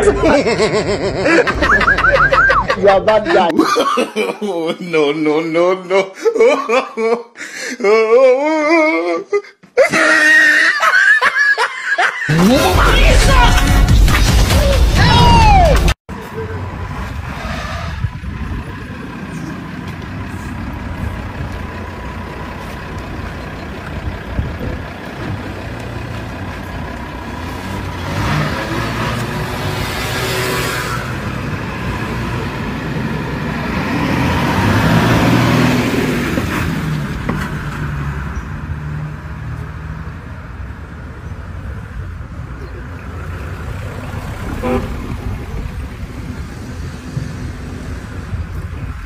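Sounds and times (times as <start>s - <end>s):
vehicle engine running: 18.1s - 28.0s.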